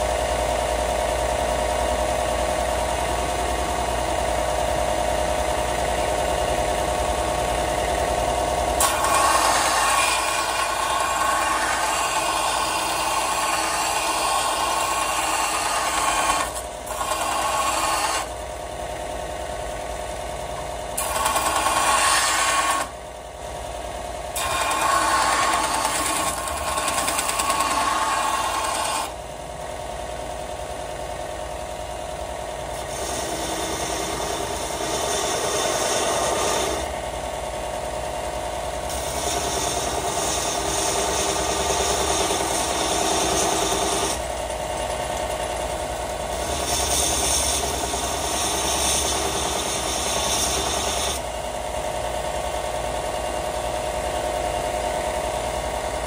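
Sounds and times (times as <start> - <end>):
belt sander motor hum: 0.0 - 30.1
steel grinding on abrasive belt: 7.3 - 18.5, 20.9 - 23.0, 24.3 - 29.2, 32.7 - 37.0, 38.9 - 51.3.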